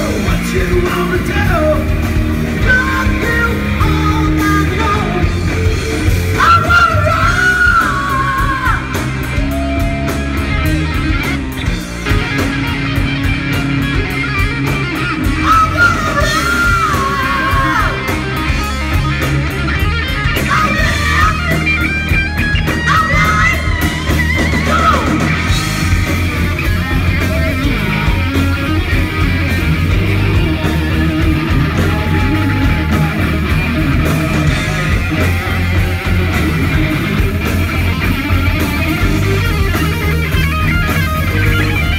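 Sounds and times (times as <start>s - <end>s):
person singing: 0.0s - 9.6s, 15.2s - 18.2s
live rock band playing: 0.0s - 41.9s.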